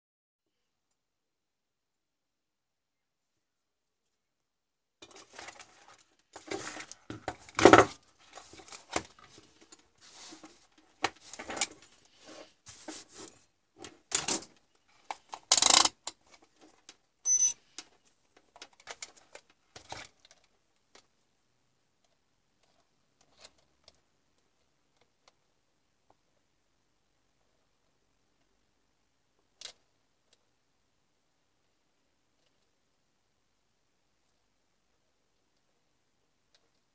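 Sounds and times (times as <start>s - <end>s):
short high beep: 17.3s - 17.6s.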